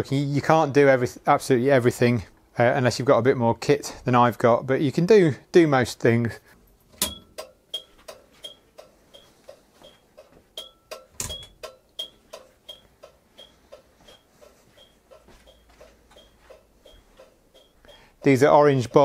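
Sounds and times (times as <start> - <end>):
turn signal flasher ticking: 7.0 - 19.0.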